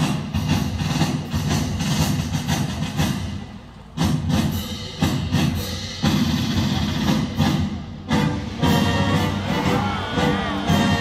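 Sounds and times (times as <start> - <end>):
pounding drum beat: 0.0 - 11.0
orchestra playing: 6.0 - 11.0.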